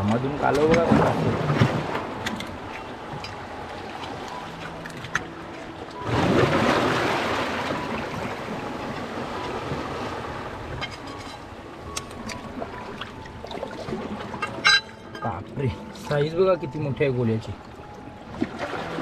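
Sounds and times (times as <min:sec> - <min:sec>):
water rushing among rocks: 0:00.0 - 0:11.1, 0:17.8 - 0:19.0.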